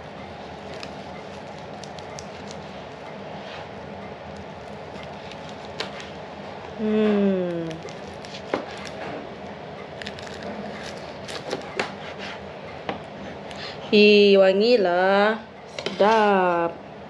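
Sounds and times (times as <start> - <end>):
woman's voice: 6.8 - 7.8, 13.8 - 16.8.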